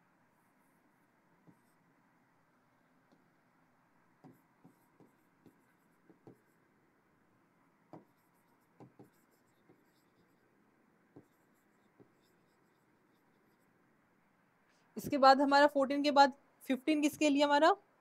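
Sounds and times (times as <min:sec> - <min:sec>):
stylus tapping on touchscreen: 0:04.2 - 0:06.5, 0:07.9 - 0:10.0.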